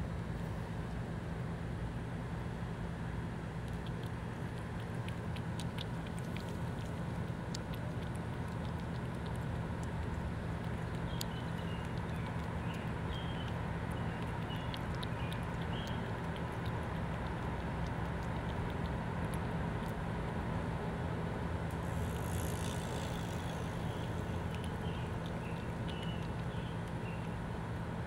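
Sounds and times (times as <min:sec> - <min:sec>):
road traffic rumble: 0:00.0 - 0:28.0
cat lapping milk: 0:03.4 - 0:28.0.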